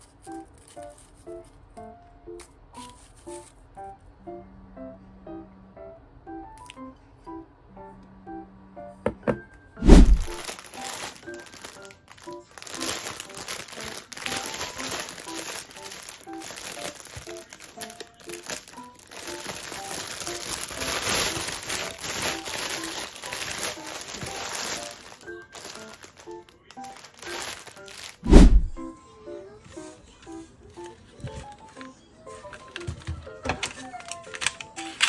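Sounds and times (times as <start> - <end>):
soft background music: 0.0 - 35.0
plastic bag crinkling: 9.9 - 28.2.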